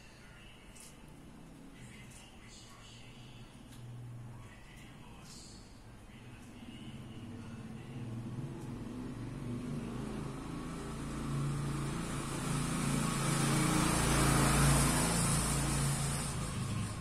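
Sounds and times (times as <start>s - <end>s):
vehicle passing by: 6.8s - 17.0s.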